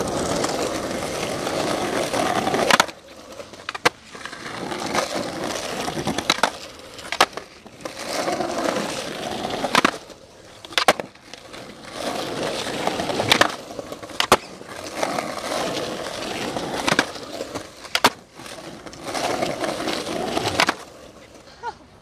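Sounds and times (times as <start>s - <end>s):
skateboard clacking on ground: 0.0s - 21.5s
skateboard wheels rolling on concrete: 0.0s - 22.0s.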